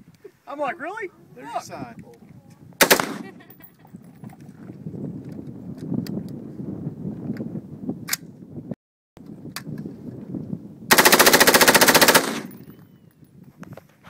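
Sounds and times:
automatic gunfire burst: 2.8 - 3.4, 10.9 - 12.5.

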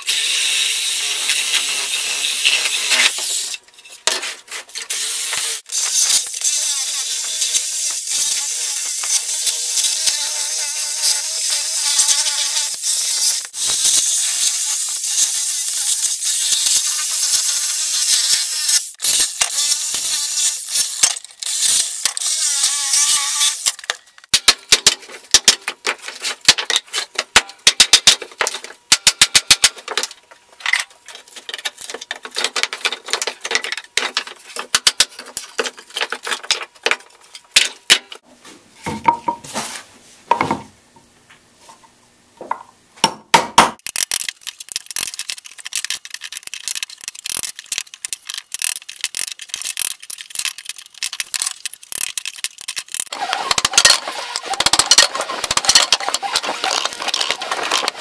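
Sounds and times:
wood scraping: 44.2 - 58.0
boards clattering: 53.2 - 58.0.

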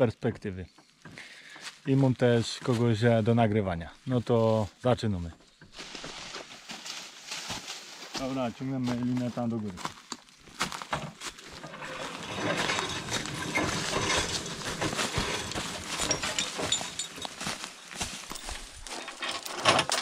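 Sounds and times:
footsteps crunching through leaves: 5.7 - 19.2
steel cable dragged on ground: 11.2 - 20.0.

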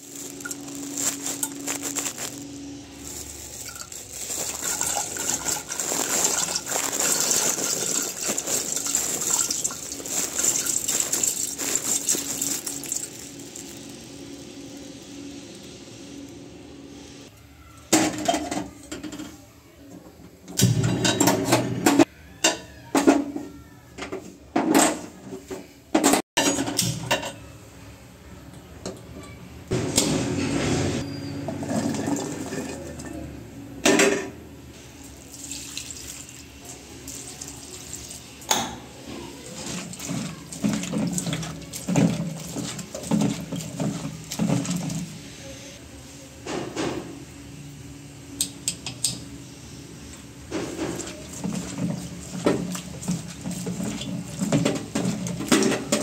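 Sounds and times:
utensils knocking and clattering: 3.6 - 13.3, 39.6 - 45.1, 50.5 - 56.0
tap water running and splashing: 3.6 - 14.1, 35.1 - 45.2, 50.5 - 56.0.

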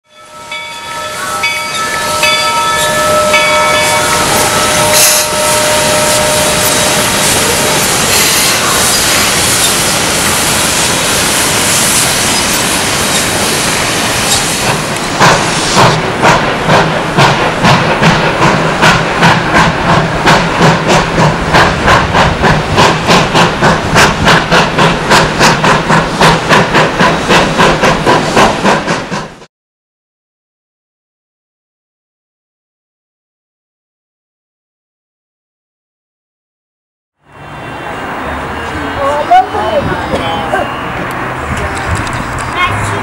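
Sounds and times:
steam locomotive hissing steam: 1.3 - 29.5
steam locomotive exhaust chuffing: 1.4 - 29.5.

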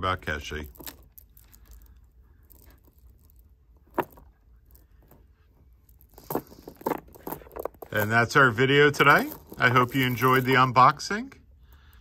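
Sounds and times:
pearls clicking together: 0.6 - 5.2, 5.8 - 8.3, 9.0 - 10.7.

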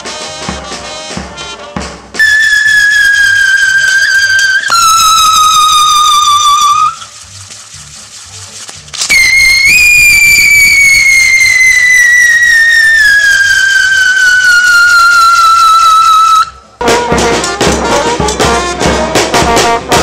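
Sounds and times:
loud high whistling tone: 2.2 - 7.1, 9.1 - 16.6.

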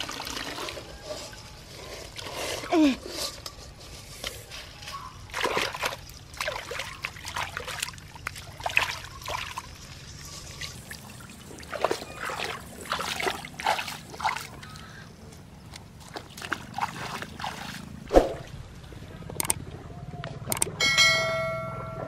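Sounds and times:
boots wading through muddy water: 5.3 - 9.7, 10.7 - 18.0.

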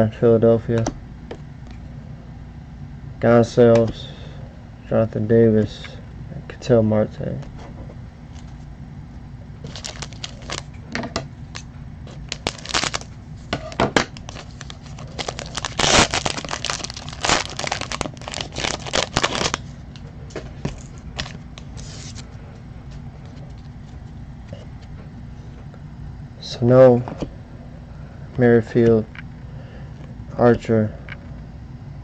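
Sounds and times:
foil wrapper crinkling: 9.6 - 10.7, 11.5 - 20.0, 20.6 - 22.2.

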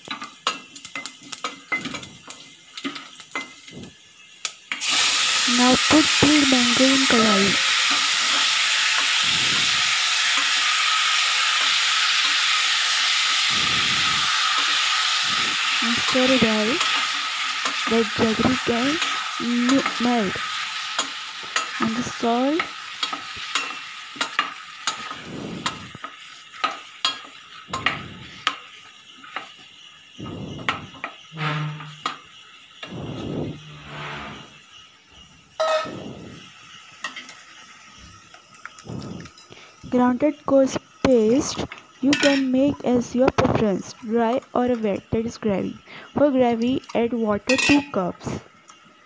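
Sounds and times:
hot oil sizzling in a pot: 0.0 - 49.0
wooden spatula scraping metal pot: 31.4 - 32.1.

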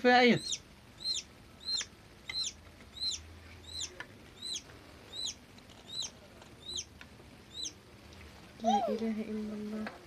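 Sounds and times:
chick peeping: 0.3 - 6.9, 7.5 - 7.8.

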